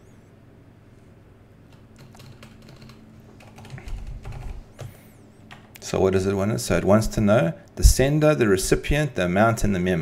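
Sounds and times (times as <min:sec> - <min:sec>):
computer keyboard keystrokes: 0:01.7 - 0:05.8.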